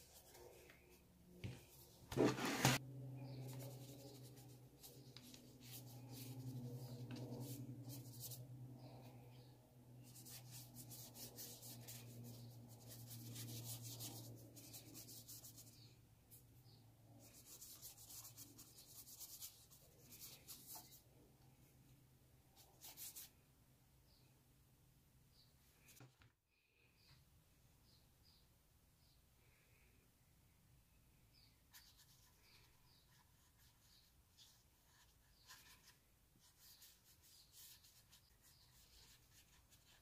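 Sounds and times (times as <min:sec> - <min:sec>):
paintbrush scratching on paper: 0:01.7 - 0:08.6, 0:10.0 - 0:15.9, 0:17.2 - 0:21.0, 0:22.6 - 0:23.3, 0:31.7 - 0:40.0.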